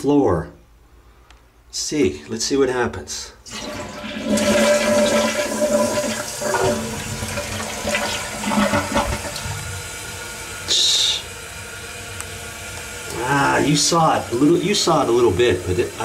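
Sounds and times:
toilet flushing: 0:03.5 - 0:16.0.

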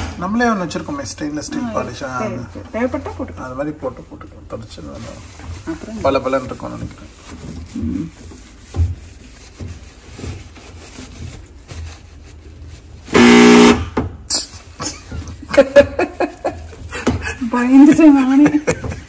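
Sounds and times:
paper towel rubbing metal: 0:04.7 - 0:13.8
horn-like honk: 0:13.2 - 0:13.9.

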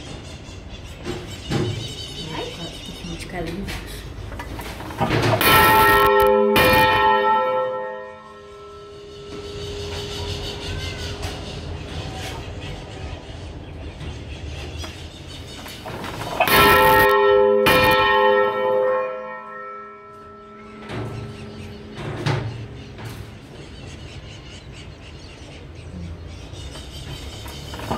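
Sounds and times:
church bell tolling: 0:05.1 - 0:11.5, 0:16.2 - 0:24.1.

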